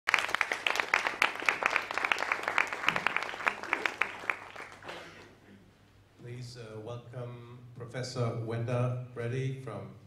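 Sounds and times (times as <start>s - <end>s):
audience applauding: 0.1s - 5.0s.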